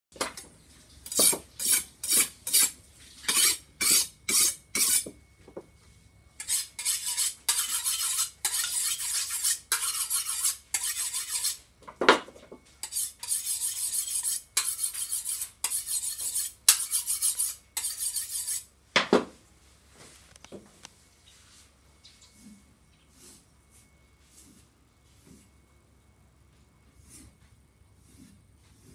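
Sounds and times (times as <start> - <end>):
knife sharpening strokes: 1.1 - 5.1, 6.4 - 11.6, 12.8 - 18.7.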